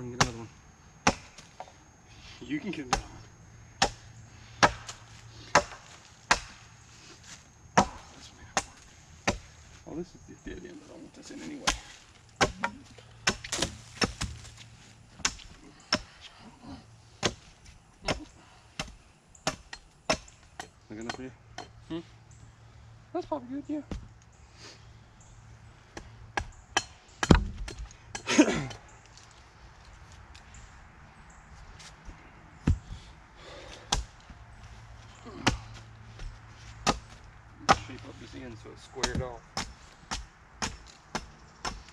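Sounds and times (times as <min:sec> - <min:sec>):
hatchet chopping wood: 0:00.2 - 0:01.7, 0:03.8 - 0:06.7, 0:07.8 - 0:09.5, 0:11.6 - 0:14.5, 0:15.2 - 0:16.3, 0:17.2 - 0:21.8, 0:23.9 - 0:24.1, 0:25.9 - 0:28.8, 0:32.6 - 0:33.0, 0:33.7 - 0:34.4, 0:35.3 - 0:38.1, 0:39.0 - 0:41.9.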